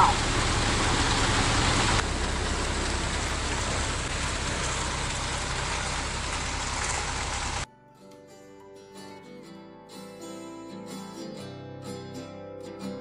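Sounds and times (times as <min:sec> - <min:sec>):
diesel engine running: 0:00.0 - 0:07.6.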